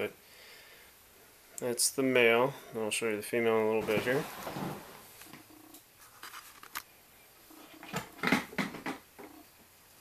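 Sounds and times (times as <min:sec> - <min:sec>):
plastic tub knocks and scrapes: 0:03.8 - 0:05.0.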